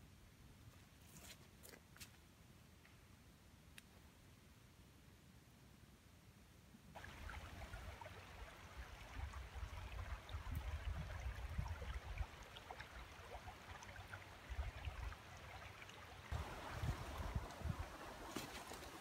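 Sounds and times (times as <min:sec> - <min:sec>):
creek trickling and babbling: 0:06.9 - 0:19.0.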